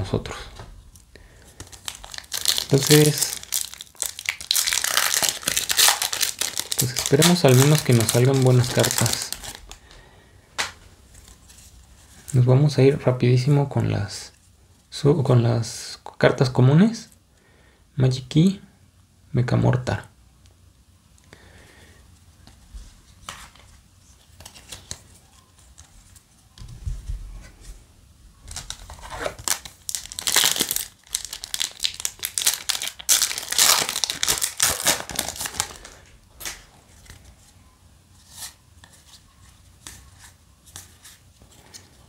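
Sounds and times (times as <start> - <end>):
trading cards rustling and clicking: 1.6 - 9.7, 23.2 - 26.8
foil pack crinkling and tearing: 1.6 - 9.8, 28.5 - 36.6.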